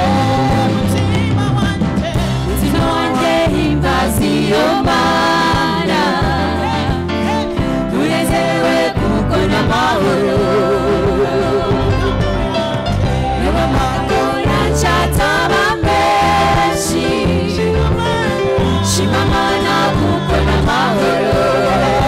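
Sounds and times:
bass and drums backing: 0:00.0 - 0:22.0
woman singing lead: 0:00.0 - 0:22.0
women's choir singing: 0:02.5 - 0:12.2, 0:13.3 - 0:22.0.

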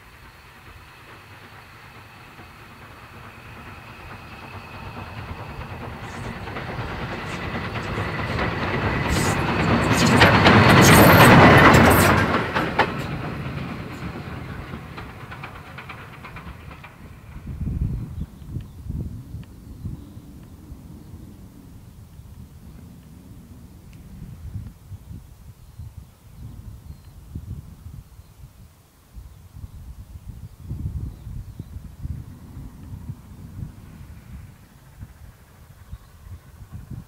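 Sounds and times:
wheels clicking over rail joints: 0:00.0 - 0:19.6
wind rumble on microphone: 0:02.3 - 0:37.0.

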